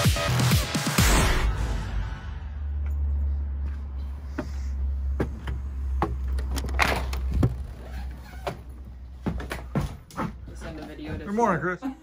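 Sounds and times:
footsteps on wooden porch: 0:03.6 - 0:11.7.

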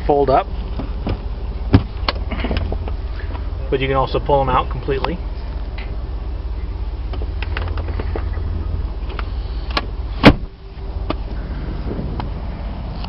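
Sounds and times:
low rumble: 0:00.0 - 0:13.0
loud clunk: 0:09.7 - 0:10.5.

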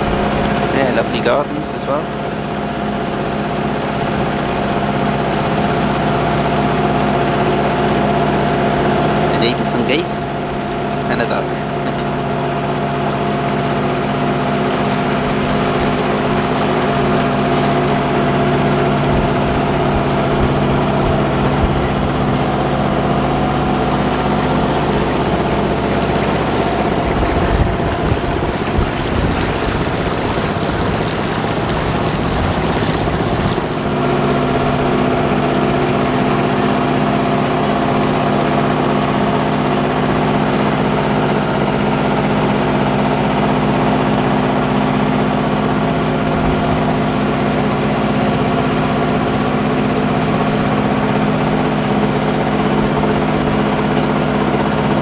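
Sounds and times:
boat engine running steadily: 0:00.0 - 0:55.0
water noise: 0:00.0 - 0:55.0
wind gusting on microphone: 0:26.7 - 0:34.0.

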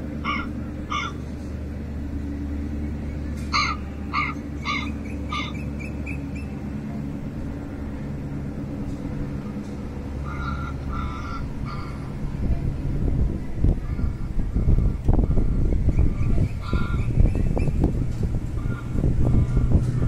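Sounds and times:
low background rumble: 0:00.0 - 0:20.0
crow cawing: 0:00.2 - 0:01.2, 0:03.5 - 0:05.6, 0:10.2 - 0:12.1.

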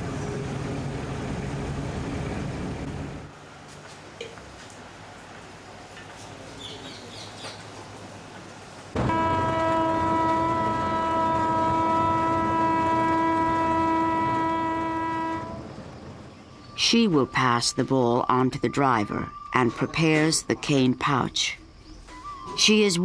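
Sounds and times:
train horn blast: 0:09.0 - 0:15.8.

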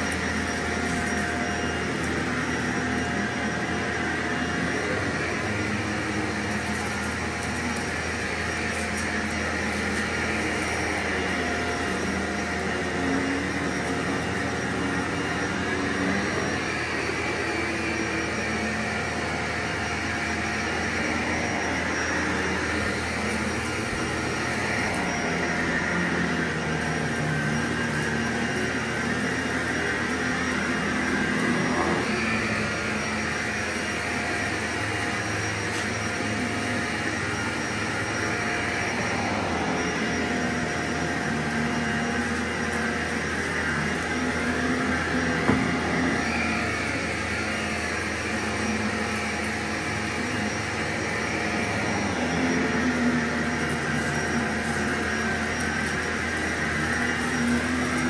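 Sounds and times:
vacuum cleaner running: 0:00.0 - 0:58.0.

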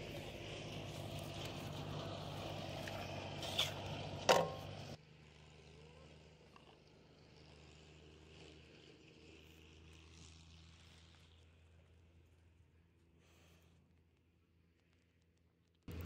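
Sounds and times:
low engine-like hum: 0:00.0 - 0:16.0.

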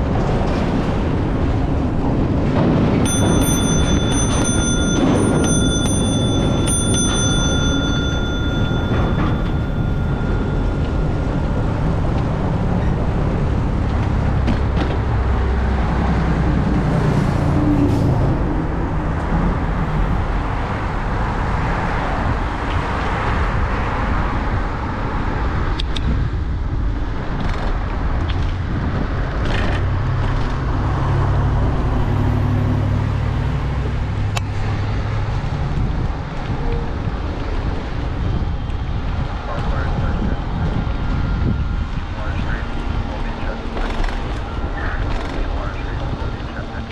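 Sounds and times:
road traffic rumble: 0:00.0 - 0:46.9.

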